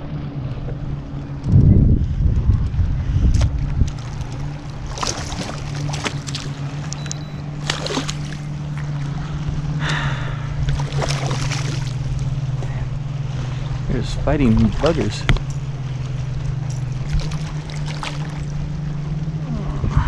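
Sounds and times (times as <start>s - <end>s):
boat motor humming: 0.0s - 20.0s
fish splashing at surface: 4.0s - 6.8s, 7.6s - 8.5s, 10.7s - 12.1s, 17.0s - 18.5s.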